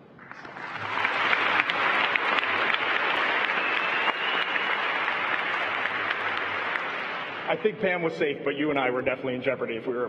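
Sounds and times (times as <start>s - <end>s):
audience applauding: 0.2s - 7.7s.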